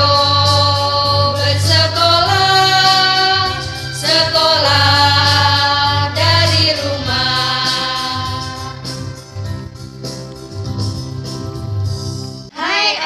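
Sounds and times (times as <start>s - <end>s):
women singing together: 0.0s - 9.0s, 12.5s - 13.0s
backing track with pulsing bass: 0.0s - 12.5s.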